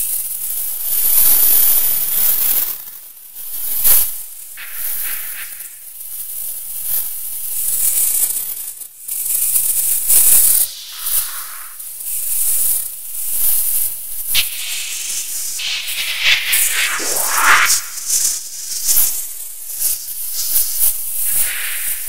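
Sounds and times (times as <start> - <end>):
hissing spray-like noise: 4.6 - 6.4, 10.5 - 12.4, 14.3 - 18.6, 20.4 - 22.0.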